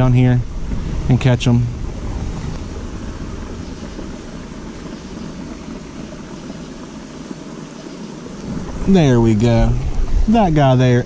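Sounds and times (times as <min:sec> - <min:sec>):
creek water rushing: 0:00.0 - 0:11.0.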